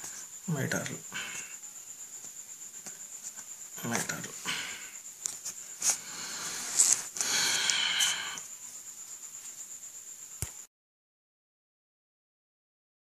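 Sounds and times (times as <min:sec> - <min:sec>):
paper rustling: 0:05.3 - 0:07.2.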